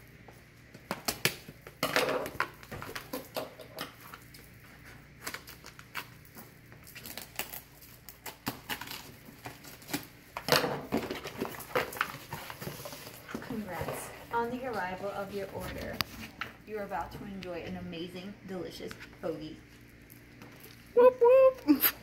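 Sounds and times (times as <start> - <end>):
tape and cardboard ripping: 0.7 - 14.0.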